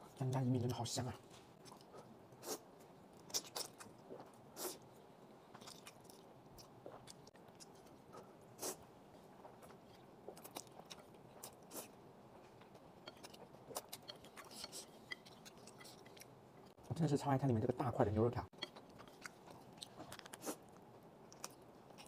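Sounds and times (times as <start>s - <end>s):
chewing: 1.6s - 4.8s, 5.5s - 8.8s, 9.4s - 16.8s, 18.6s - 22.0s.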